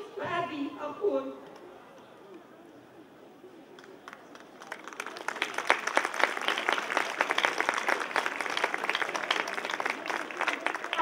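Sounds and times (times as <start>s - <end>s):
audience applause: 4.0s - 11.0s.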